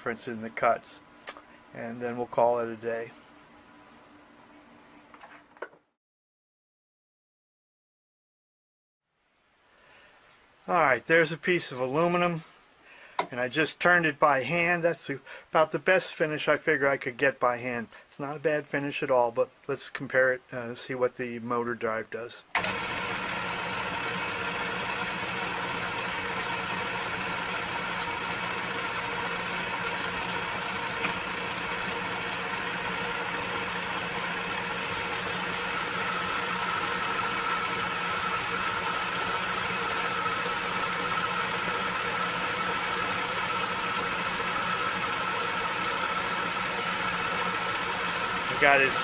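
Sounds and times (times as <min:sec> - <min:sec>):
lathe running: 0:22.6 - 0:49.0
high steady whine: 0:34.9 - 0:49.0.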